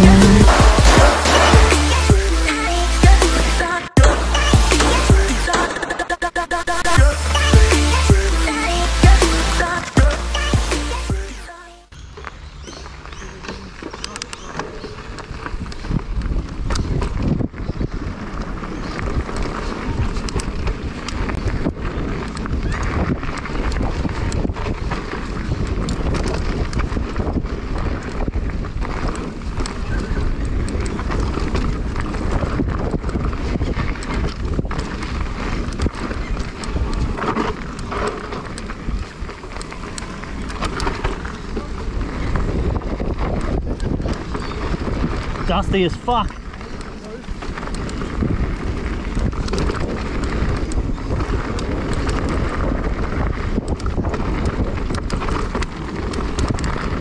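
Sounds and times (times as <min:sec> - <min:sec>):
bike rattling over bumps: 0:00.0 - 0:06.2, 0:11.9 - 0:57.0
tyres skidding on loose dirt: 0:00.0 - 0:11.1, 0:11.9 - 0:57.0
wind buffeting microphone: 0:12.7 - 0:57.0.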